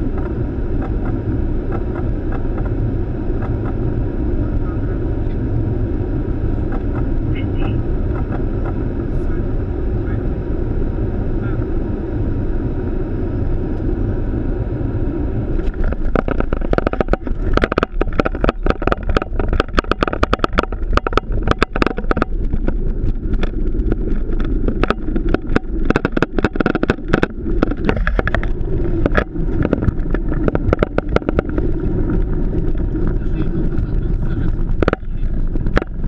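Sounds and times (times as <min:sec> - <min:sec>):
aircraft engine and airflow rumble: 0:00.0 - 0:36.0
landing gear rattling on runway: 0:15.6 - 0:36.0.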